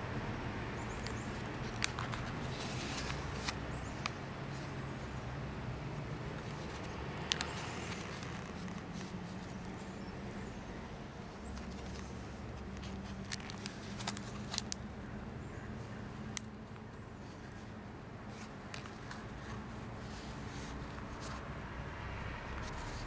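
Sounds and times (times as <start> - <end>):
stiff paper clicking: 0.9 - 4.7, 6.1 - 10.0, 11.4 - 14.8
paper pages rustling: 0.9 - 4.8, 5.9 - 10.1, 11.4 - 14.8, 18.3 - 21.5.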